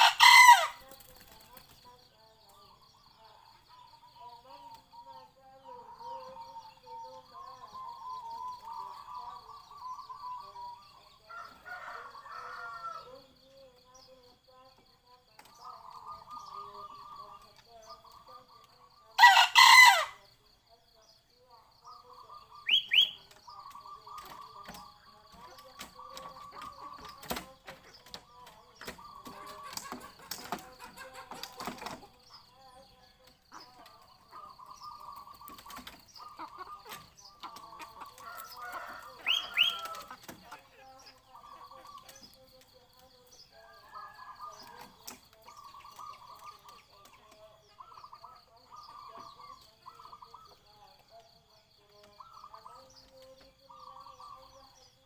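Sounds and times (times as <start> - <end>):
rooster crowing: 0.0 - 0.8, 11.3 - 13.1, 19.2 - 20.2, 38.1 - 40.3, 43.5 - 44.8
small bird chirping: 21.8 - 55.0
high bird chirps: 22.3 - 24.6, 38.4 - 40.0.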